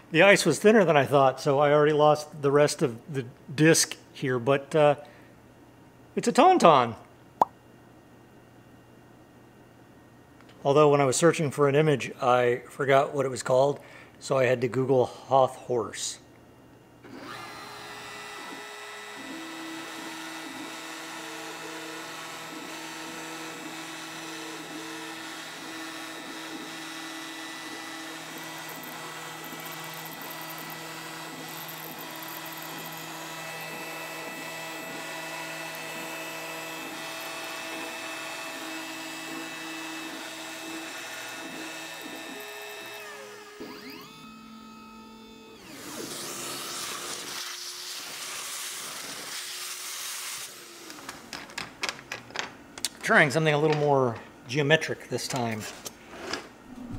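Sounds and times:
router spindle whine: 17.1 - 47.4.

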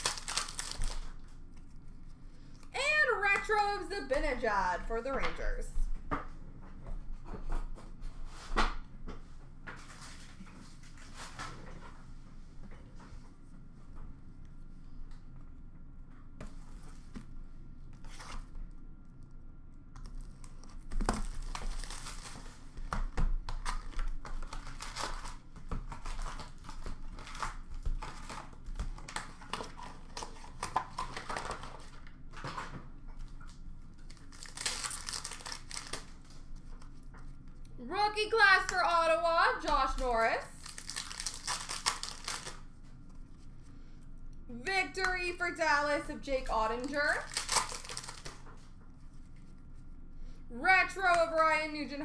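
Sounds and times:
wrappers crinkling and ripping: 0.0 - 3.7, 20.0 - 32.2, 33.2 - 37.0, 39.7 - 42.9, 46.7 - 48.7.

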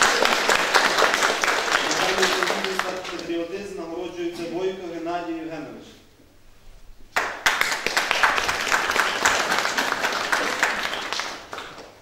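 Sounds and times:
audience applauding: 0.0 - 3.5, 7.1 - 12.0.

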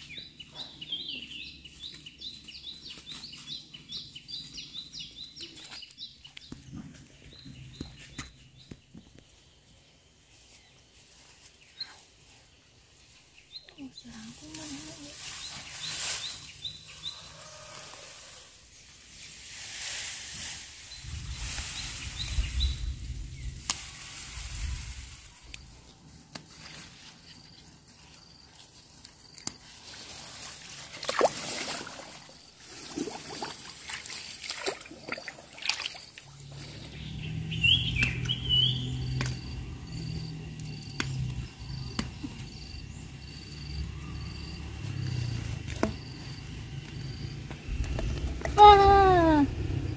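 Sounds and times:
rice plants rustling: 14.0 - 16.9, 18.7 - 34.9
muddy water splashing: 30.6 - 36.7.

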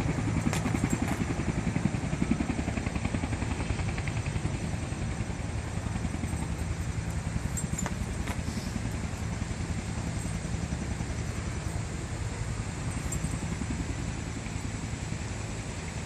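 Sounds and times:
low fluttering rumble: 0.0 - 16.0.

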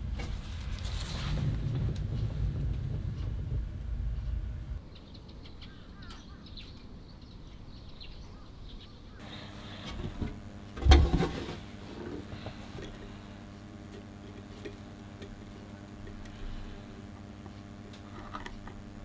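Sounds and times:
small birds chirping: 4.2 - 9.7.

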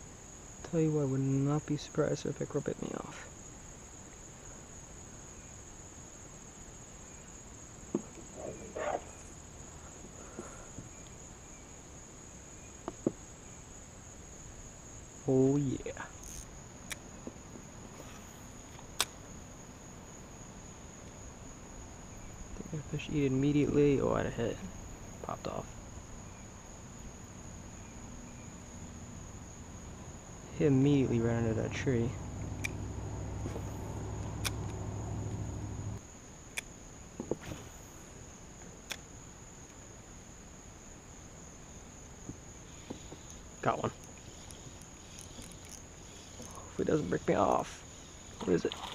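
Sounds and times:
insects droning: 0.0 - 48.9
sharp clicks: 18.7 - 19.2, 32.3 - 35.9
low whir: 31.6 - 36.0.

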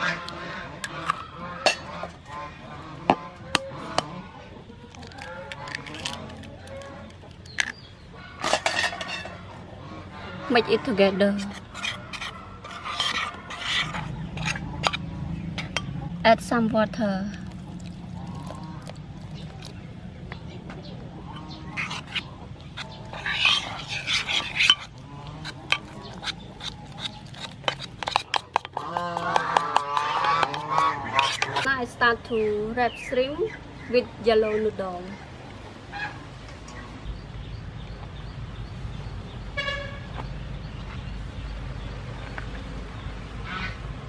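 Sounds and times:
spoon mashing wet batter: 17.3 - 20.0, 21.4 - 31.7.

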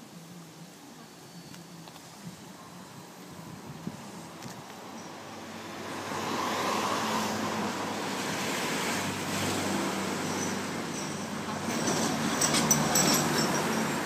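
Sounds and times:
passing vehicle engine and tyres: 3.6 - 14.0.

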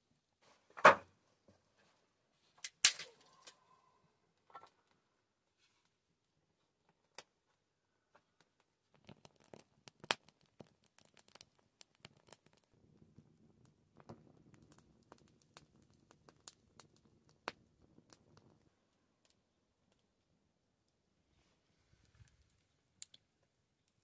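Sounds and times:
wood fire crackling and popping: 2.5 - 3.6, 6.8 - 21.1, 21.9 - 24.0.

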